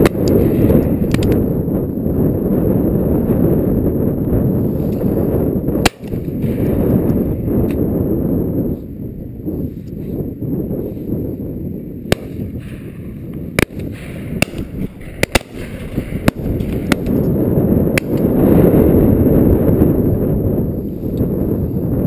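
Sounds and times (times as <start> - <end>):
wind rumble on microphone: 0.0 - 22.0
shotgun shots: 5.8 - 6.8, 12.1 - 17.3, 17.9 - 18.4.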